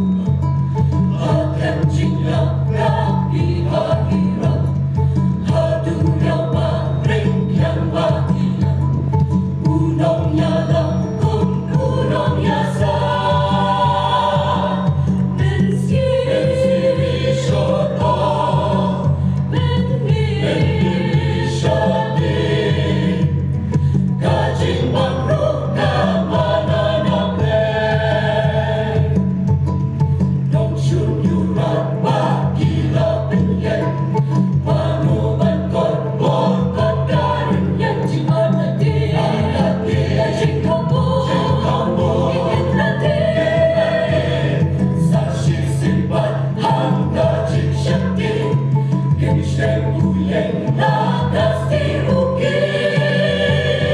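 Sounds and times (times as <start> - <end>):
mixed choir singing: 0.0 - 53.9.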